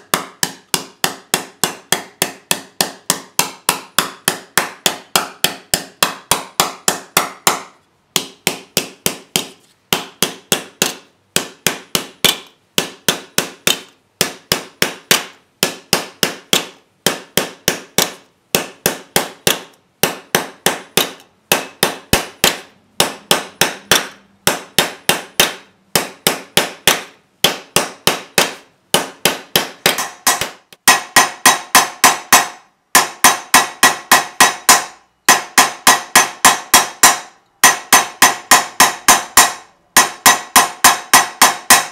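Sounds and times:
hammer striking ringing copper bowl: 0:29.9 - 0:41.9.

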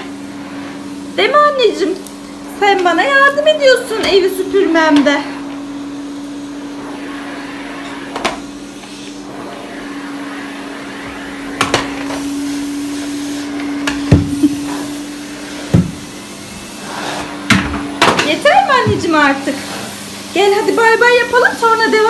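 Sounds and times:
vacuum cleaner running: 0:00.0 - 0:22.0
sharp knocks and bumps: 0:15.7 - 0:16.0.

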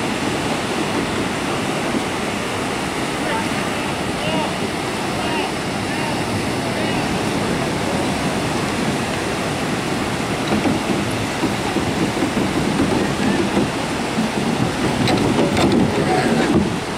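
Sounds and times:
surf breaking on beach: 0:00.0 - 0:16.9.

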